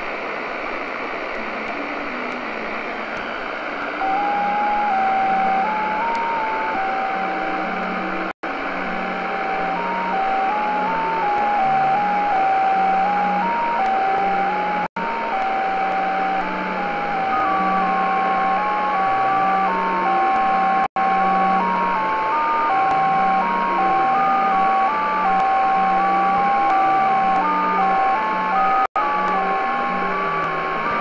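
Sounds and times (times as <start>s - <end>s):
radio band hiss: 0.0s - 31.0s
radio beeping tone hopping pitch: 4.0s - 8.3s, 8.9s - 31.0s.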